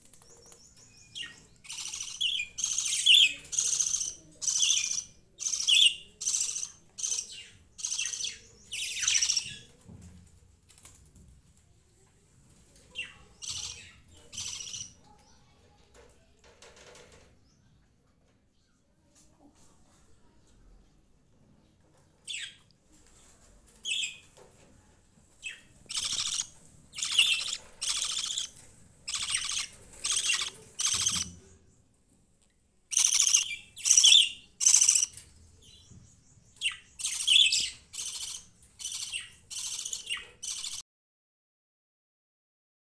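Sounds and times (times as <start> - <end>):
budgerigars chirping and squawking: 1.1 - 9.7, 13.0 - 15.0, 25.4 - 31.5, 32.9 - 35.2, 36.6 - 40.8.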